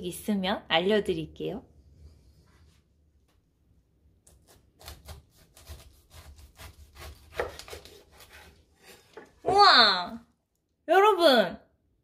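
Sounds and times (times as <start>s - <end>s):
knife cutting pineapple: 4.2s - 9.4s.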